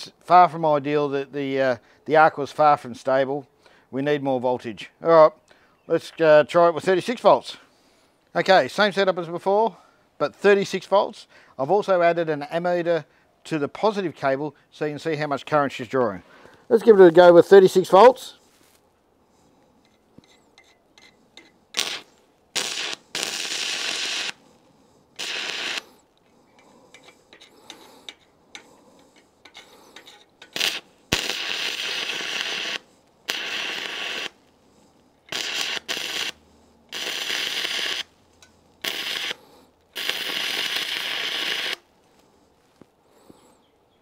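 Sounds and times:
welding arc crackling hiss: 0:21.8 - 0:24.4, 0:25.2 - 0:26.0, 0:29.5 - 0:34.5, 0:35.3 - 0:38.1, 0:38.8 - 0:41.9.

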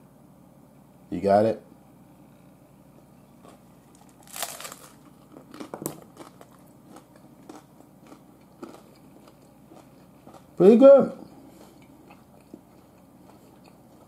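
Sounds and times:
crunching taco shell: 0:03.4 - 0:10.6.

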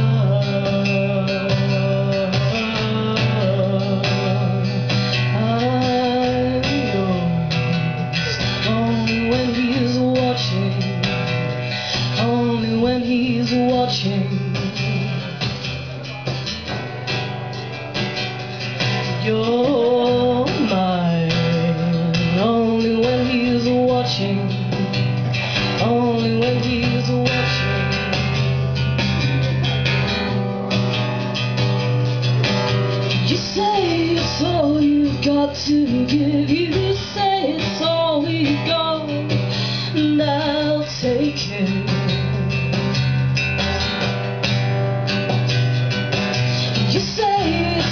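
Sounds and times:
woman singing: 0:00.0 - 0:15.5, 0:18.8 - 0:28.2, 0:33.1 - 0:43.1, 0:46.2 - 0:47.9
acoustic guitar: 0:00.0 - 0:47.9.

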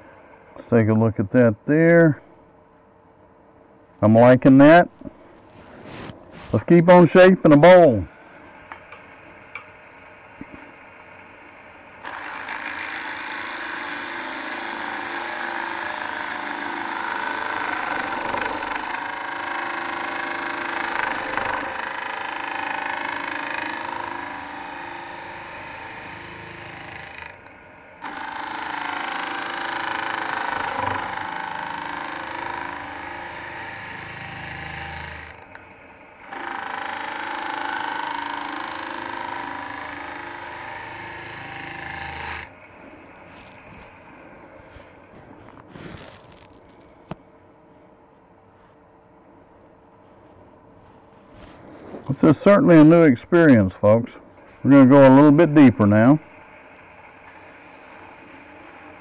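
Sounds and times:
tool cutting wood on a lathe: 0:06.5 - 0:46.4, 0:54.4 - 0:59.0
lathe running: 0:06.9 - 0:45.2, 0:54.4 - 0:59.0.

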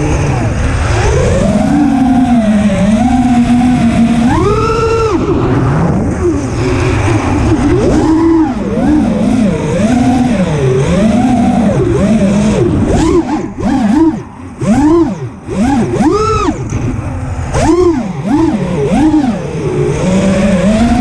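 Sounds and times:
drone motors whining: 0:00.0 - 0:21.0
low rush of air: 0:04.8 - 0:09.6.

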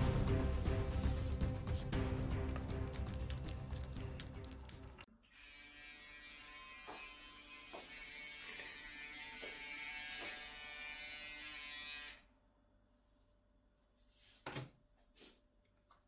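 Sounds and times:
electric shaver buzzing: 0:05.2 - 0:12.2.

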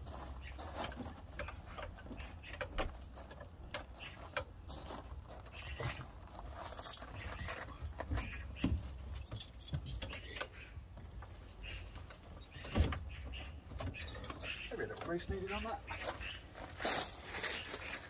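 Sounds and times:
metal objects jingling and clinking: 0:06.5 - 0:07.6, 0:09.0 - 0:10.3, 0:13.9 - 0:14.7, 0:16.8 - 0:18.0.

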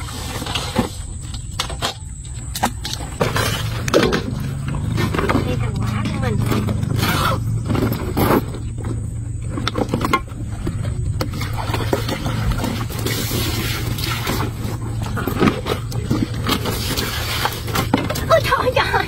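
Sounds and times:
steady low hum: 0:00.0 - 0:19.0
water pouring and splashing: 0:10.2 - 0:19.0.

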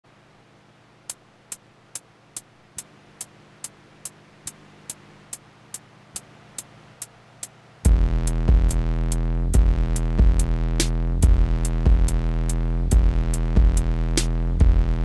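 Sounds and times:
drum machine high tick: 0:01.1 - 0:15.0
electronic beat with heavy bass: 0:01.5 - 0:15.0.

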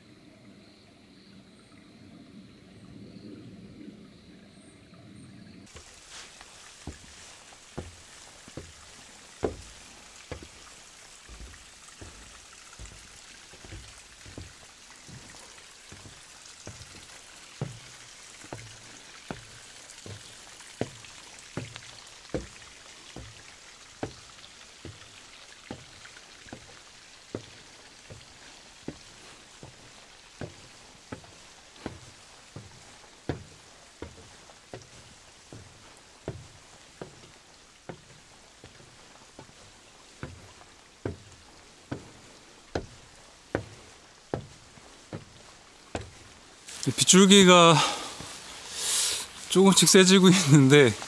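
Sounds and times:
light rain hiss: 0:00.0 - 0:51.0
footsteps on trail: 0:05.7 - 0:26.7, 0:27.3 - 0:51.0.

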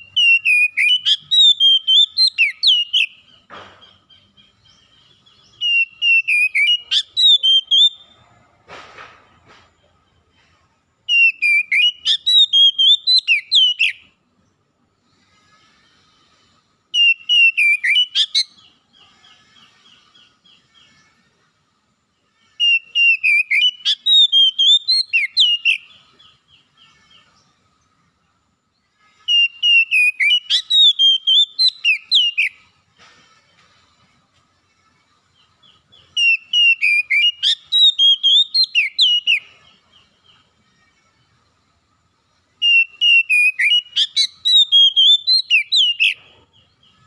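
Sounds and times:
bird singing whistles and chirps: 0:00.0 - 0:08.2, 0:11.0 - 0:14.1, 0:16.4 - 0:21.2, 0:22.6 - 0:27.9, 0:29.2 - 0:32.8, 0:35.3 - 0:40.6, 0:42.6 - 0:47.0.

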